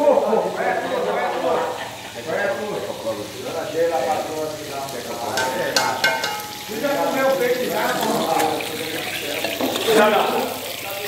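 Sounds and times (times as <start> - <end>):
fish frying in oil: 0.0 - 11.0
people talking indistinctly: 0.0 - 11.0
utensil knocking in metal pot: 5.3 - 6.7.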